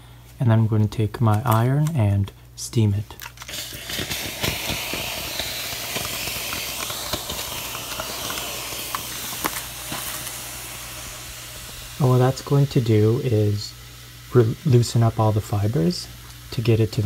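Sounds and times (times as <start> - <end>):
steam iron hissing: 3.4 - 17.0.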